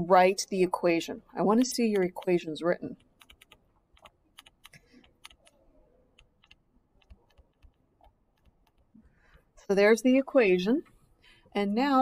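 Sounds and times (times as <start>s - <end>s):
stylus tapping on pen tablet: 6.2s - 9.5s.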